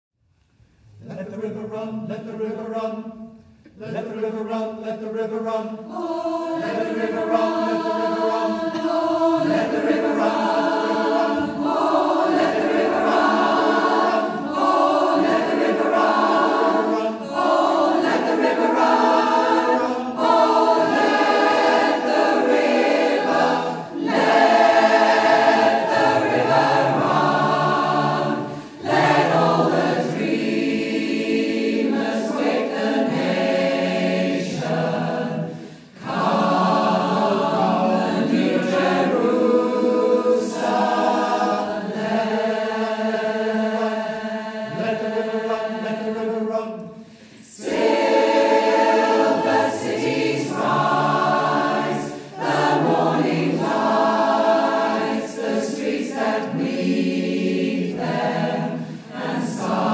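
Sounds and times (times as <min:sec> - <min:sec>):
choir singing: 0:03.8 - 0:59.9.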